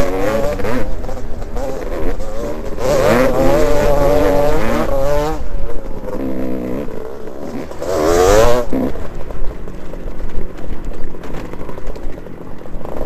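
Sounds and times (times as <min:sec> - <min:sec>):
dirt bike engine revving: 0:00.0 - 0:10.2.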